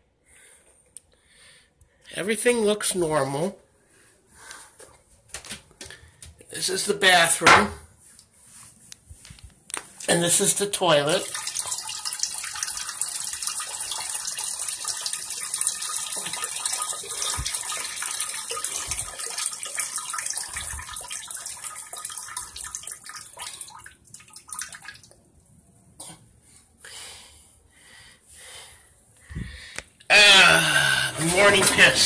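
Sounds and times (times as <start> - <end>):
urine splashing into toilet water: 10.0 - 25.2, 31.1 - 32.0.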